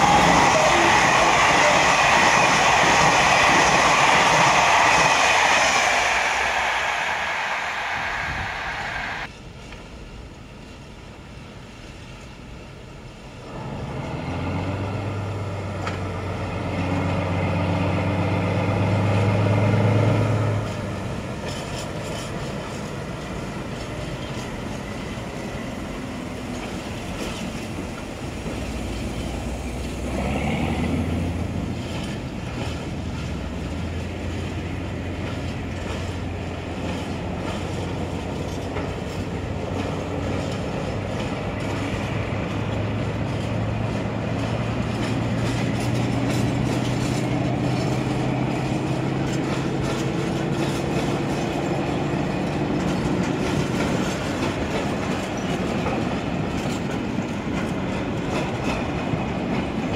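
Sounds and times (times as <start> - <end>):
diesel locomotive engine: 0.0 - 59.9
brief rising and falling sound: 3.1 - 9.3.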